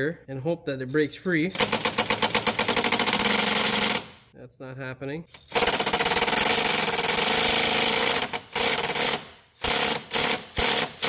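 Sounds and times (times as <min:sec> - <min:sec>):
impact driver hammering: 0:01.5 - 0:04.2, 0:05.4 - 0:11.0.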